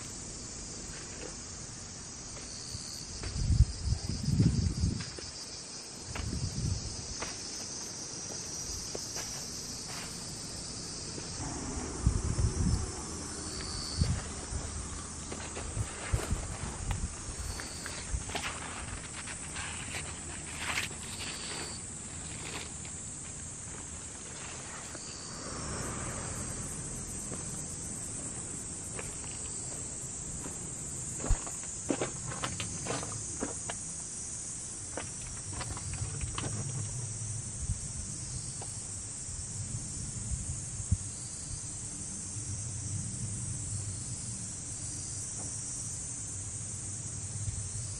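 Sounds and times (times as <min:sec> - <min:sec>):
insects droning: 0:00.0 - 0:47.9
low rumbling thumps: 0:11.0 - 0:18.4, 0:25.0 - 0:33.6.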